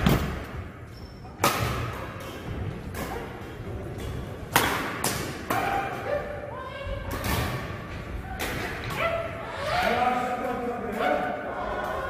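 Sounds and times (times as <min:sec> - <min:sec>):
racket hitting shuttlecock: 0:04.5 - 0:05.9.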